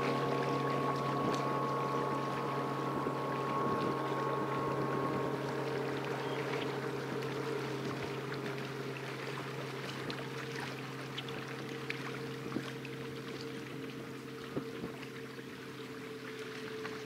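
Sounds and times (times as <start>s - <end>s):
distant motorboat engine humming: 0.0s - 17.0s
small waves lapping: 0.0s - 17.0s.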